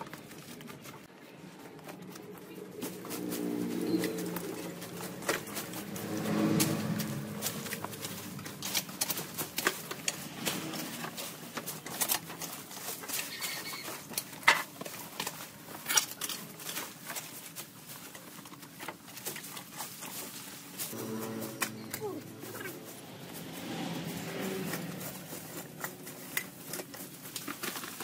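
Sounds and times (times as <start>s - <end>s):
weeds rustling: 0.0s - 28.0s
brush snapping and crackling: 1.7s - 28.0s.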